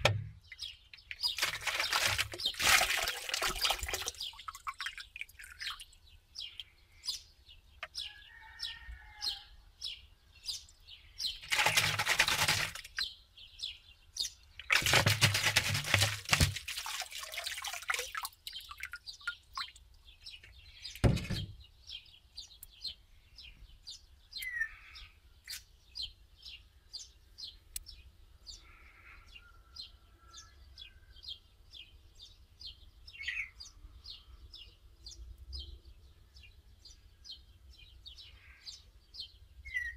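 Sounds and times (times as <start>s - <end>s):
water splashing and sloshing: 0.0s - 6.6s, 11.4s - 13.1s, 14.6s - 21.6s.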